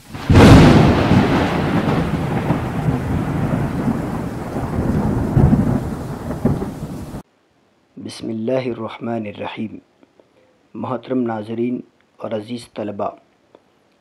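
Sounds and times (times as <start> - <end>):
rolling thunder rumble: 0.0 - 7.2
thunder clap: 0.0 - 7.2
rain-like hiss: 0.0 - 12.4.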